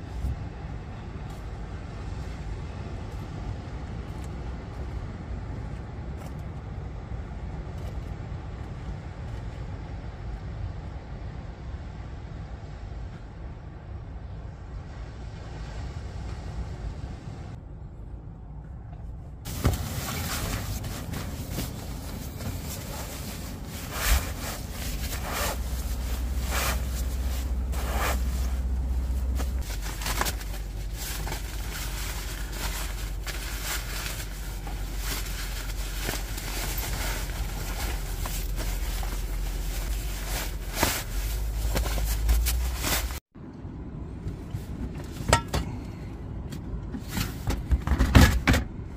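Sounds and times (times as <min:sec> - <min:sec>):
steady low rumble: 0:00.0 - 0:47.1
nylon sleeping bag rustling: 0:19.5 - 0:43.3.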